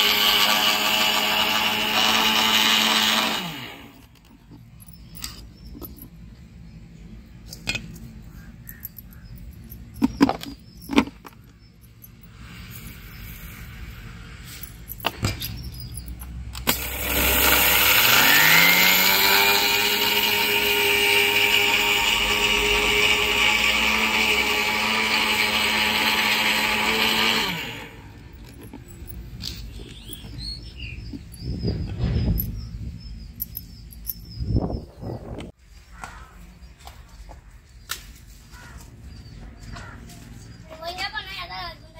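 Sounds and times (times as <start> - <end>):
mixer grinder motor whine: 0.0 - 4.3, 16.6 - 32.0
knocks and clicks: 8.8 - 12.1.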